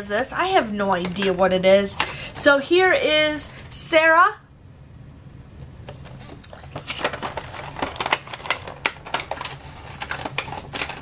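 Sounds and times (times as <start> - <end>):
cardboard and plastic box being opened: 5.9 - 11.0.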